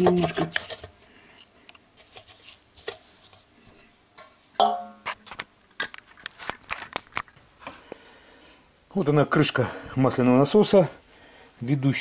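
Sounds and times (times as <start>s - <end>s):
scraping and light tapping: 0.0s - 7.8s.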